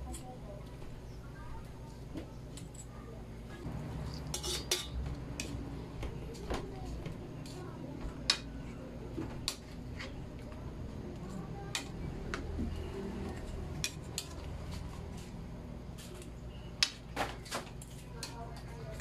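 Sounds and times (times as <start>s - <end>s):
metal spatula clinking on pans: 4.2s - 5.6s.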